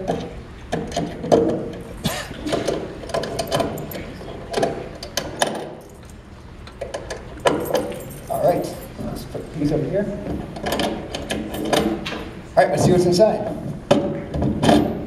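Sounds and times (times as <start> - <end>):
metal lock clicking and rattling: 0.0 - 8.9, 10.3 - 12.4, 13.9 - 15.0.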